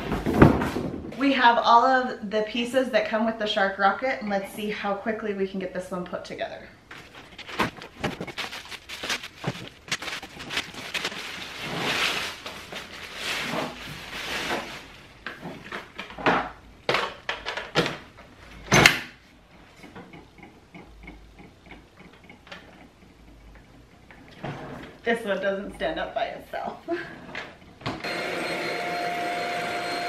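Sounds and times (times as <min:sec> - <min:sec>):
plastic wrapping rustling: 0:06.9 - 0:16.2.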